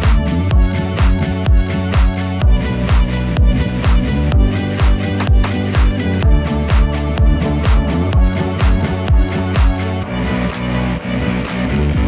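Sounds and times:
background music with low beat: 0.0 - 12.0.

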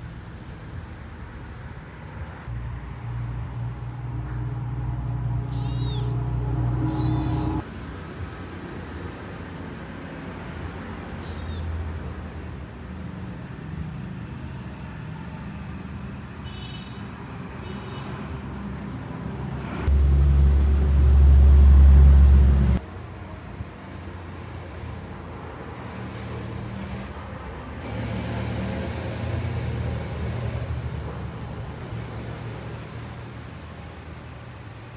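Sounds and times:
traffic rumble: 0.0 - 34.9
loud low rumble: 2.6 - 7.6, 19.9 - 22.8.

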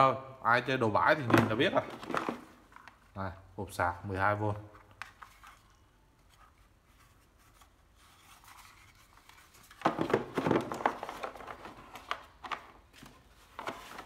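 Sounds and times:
plastic crinkling and rustling: 1.3 - 3.2, 4.7 - 14.0.

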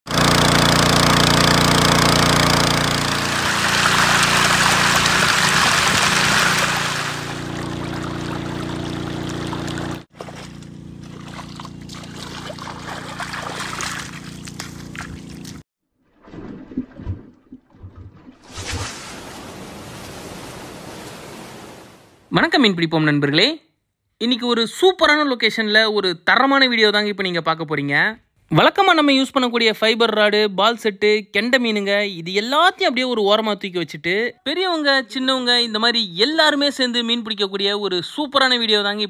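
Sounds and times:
water gushing: 0.1 - 15.6
water pump engine humming: 0.1 - 15.6.

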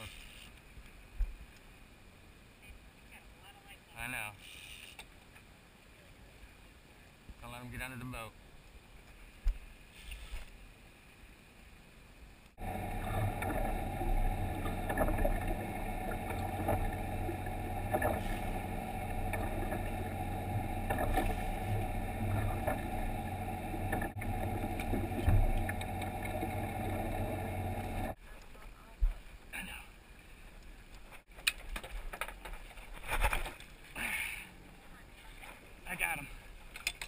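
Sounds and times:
boat engine running: 12.6 - 28.2.

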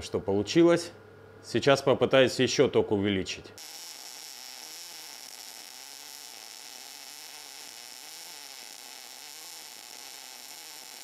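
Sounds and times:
welder arc hissing: 3.6 - 11.0.

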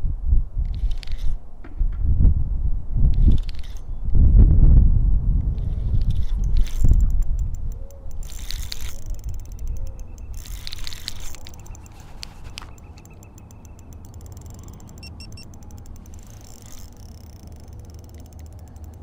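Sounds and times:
fishing reel gears ticking: 5.6 - 19.0.

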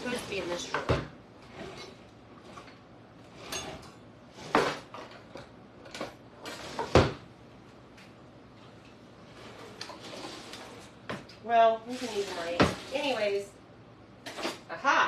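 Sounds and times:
utensils clattering in a drawer: 3.3 - 7.0, 11.9 - 13.2, 14.2 - 14.7.

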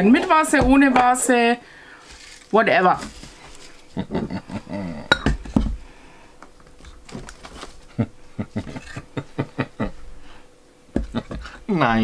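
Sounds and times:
ceramic pieces knocking on table: 5.1 - 5.8.

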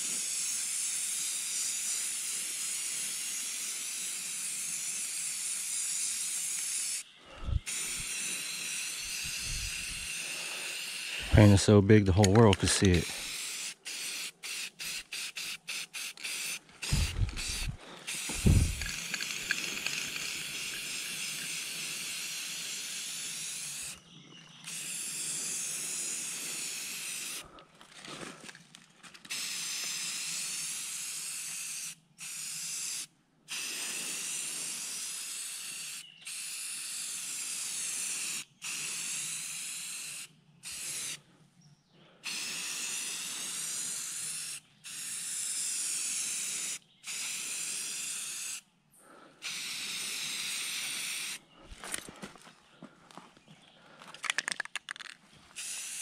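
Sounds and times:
spray paint can hissing: 0.0 - 11.5, 12.7 - 24.0, 24.7 - 27.4, 29.3 - 41.2, 42.2 - 48.6, 49.4 - 51.4, 54.4 - 56.0
low thumps: 16.9 - 18.9.

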